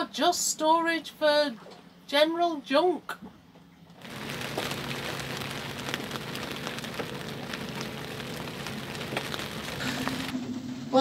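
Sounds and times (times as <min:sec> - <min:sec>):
heavy rain on windows and deck: 0:04.0 - 0:10.4.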